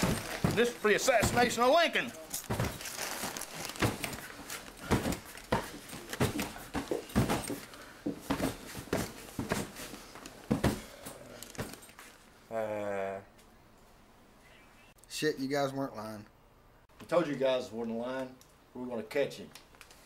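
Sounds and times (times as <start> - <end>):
dull thuds of kicks and blows: 0.0 - 1.7, 2.4 - 2.9, 3.6 - 4.2, 4.8 - 9.8, 10.4 - 10.9.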